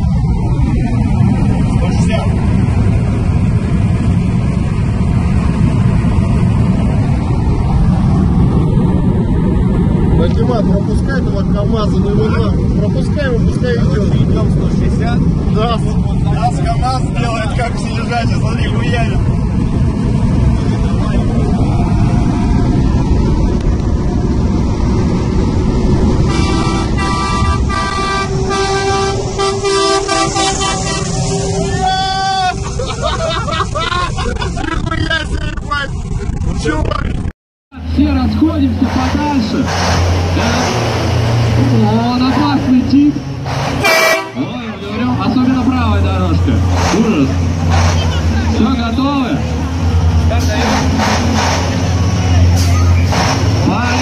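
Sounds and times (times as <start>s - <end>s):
road and wind noise in car cabin: 0.0s - 54.0s
truck running alongside: 0.0s - 54.0s
short repeated horn honks: 26.3s - 31.2s, 43.8s - 44.4s.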